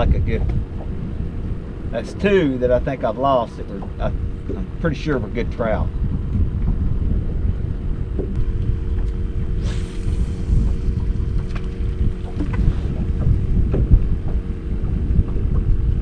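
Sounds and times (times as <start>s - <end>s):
steady hum: 0.0s - 16.0s
wind buffeting microphone: 0.0s - 16.0s
brief hiss: 9.6s - 10.5s.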